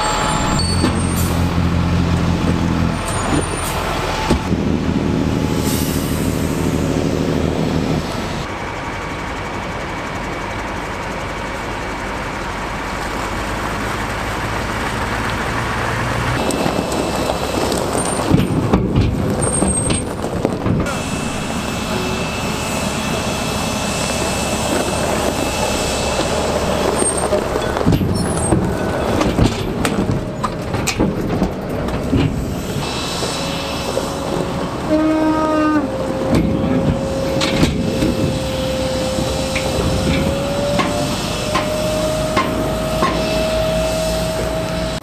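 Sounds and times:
diesel engine running: 0:00.0 - 0:45.0
tyres crunching on gravel: 0:16.3 - 0:34.9
steady whine: 0:20.2 - 0:34.9.

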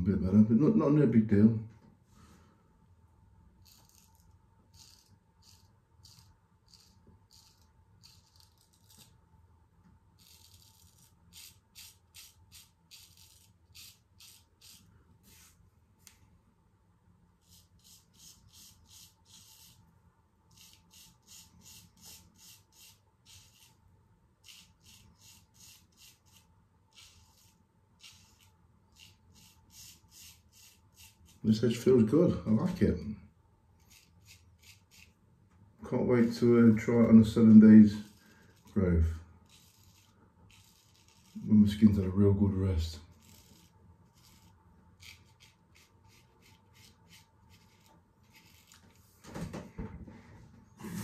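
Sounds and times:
straight razor scraping stubble: 0:03.6 - 0:09.2, 0:10.2 - 0:15.6, 0:17.4 - 0:19.8, 0:20.5 - 0:23.8, 0:24.4 - 0:31.9, 0:33.8 - 0:35.2, 0:37.3 - 0:42.0, 0:43.1 - 0:49.1.

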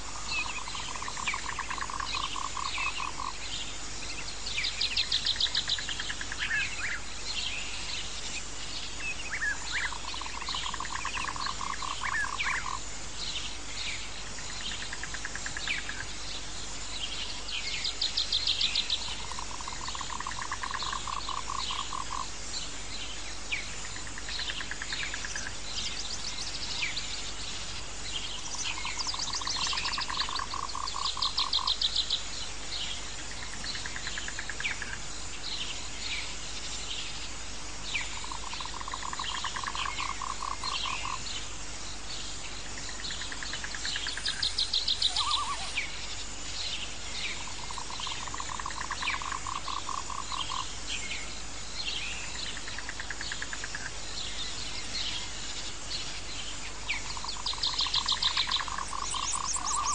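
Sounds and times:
high insect hiss: 0:00.0 - 0:59.9
frog pulsed trill: 0:44.1 - 0:45.8.

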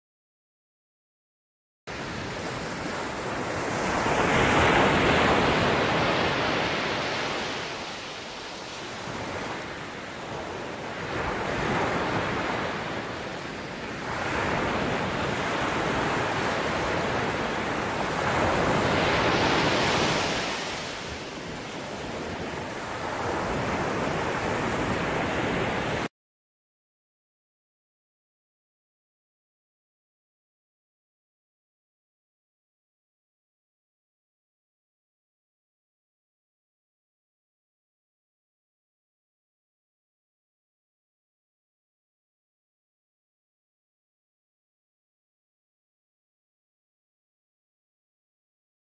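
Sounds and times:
ocean waves breaking: 0:01.9 - 0:26.1.

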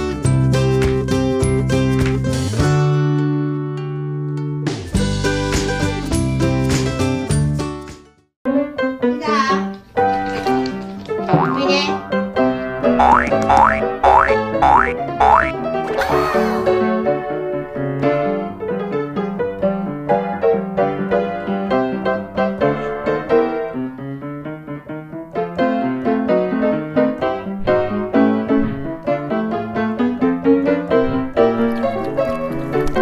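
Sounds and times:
piano music quick notes: 0:11.1 - 0:12.0, 0:12.8 - 0:16.3.

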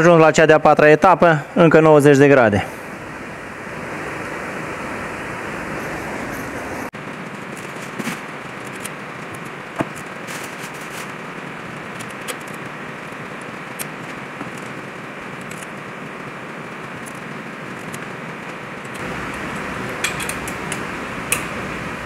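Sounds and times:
steady hiss: 0:02.6 - 0:06.9, 0:19.0 - 0:22.0.

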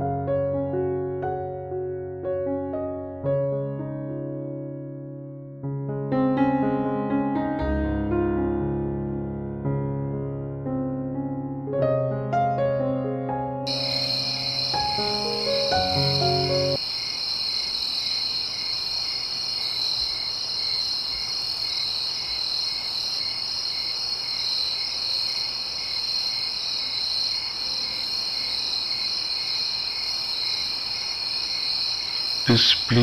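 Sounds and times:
crickets chirping: 0:13.7 - 0:33.0.

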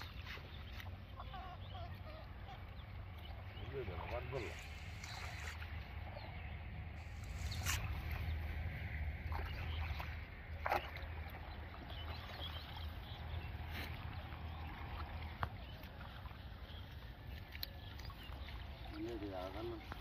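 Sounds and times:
water sloshing and splashing: 0:00.0 - 0:20.0
steady low rumble: 0:02.8 - 0:15.6.

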